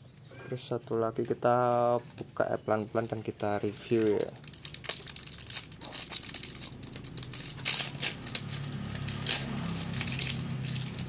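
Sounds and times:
plastic wrap crinkling: 2.8s - 11.0s.

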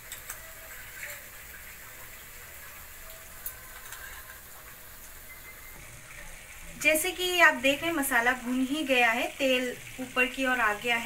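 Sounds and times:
paste sizzling in oil: 0.0s - 11.0s.

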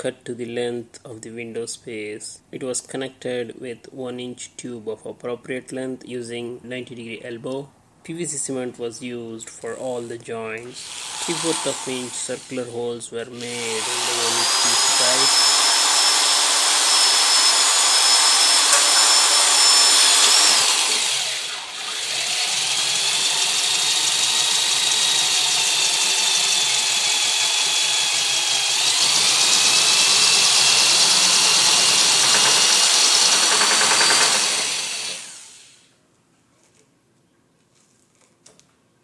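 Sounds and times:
electric drill boring plastic pipe: 10.8s - 12.6s, 13.4s - 35.8s.

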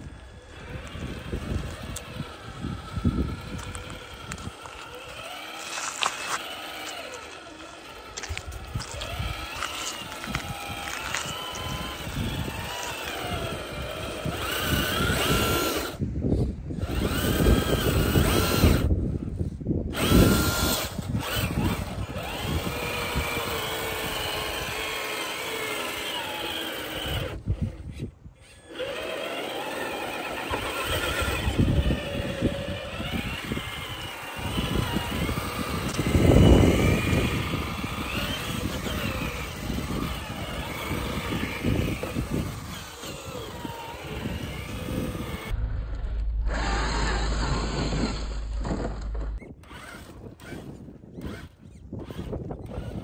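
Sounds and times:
electric motor whining: 0.0s - 53.0s
tires on dirt and rock: 0.0s - 53.0s.

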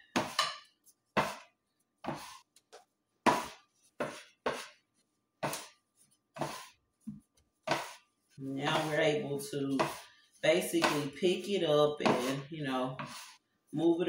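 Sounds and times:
bench scraper knocking on wood: 1.2s - 1.5s.

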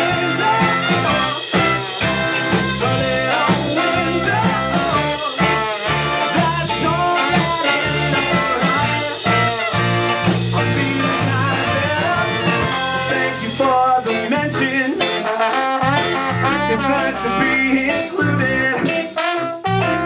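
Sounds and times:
ska-punk band playing live: 0.0s - 20.0s.

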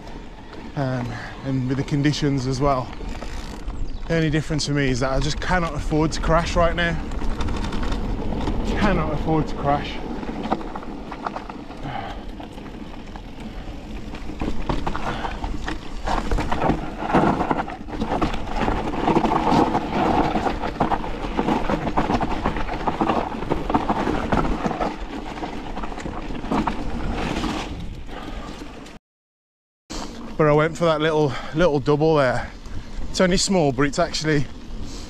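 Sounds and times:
low wind rumble: 0.0s - 28.9s
bike knocking and rattling: 0.0s - 29.0s
bike tyres rolling on dirt: 0.0s - 29.0s, 29.9s - 35.0s.

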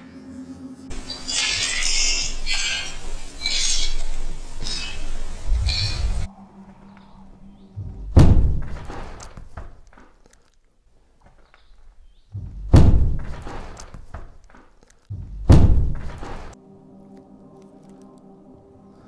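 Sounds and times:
heavy deep thuds: 4.1s - 6.3s, 7.7s - 9.9s, 12.3s - 14.4s, 15.1s - 16.6s.

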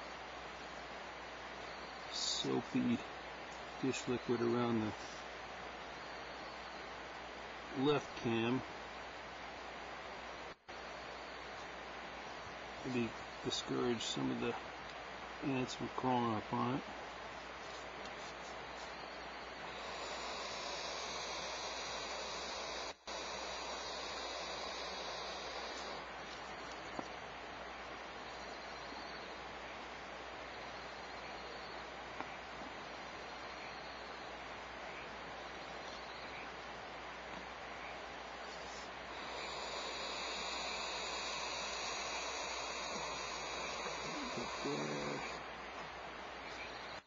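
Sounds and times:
owl nestlings hissing: 15.3s - 27.2s, 37.7s - 45.5s.

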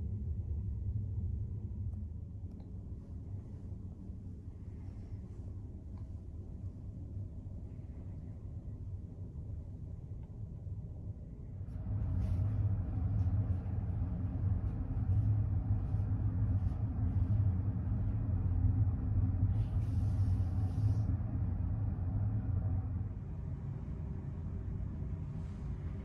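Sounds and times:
ship machinery and ventilation hum: 0.0s - 26.0s.

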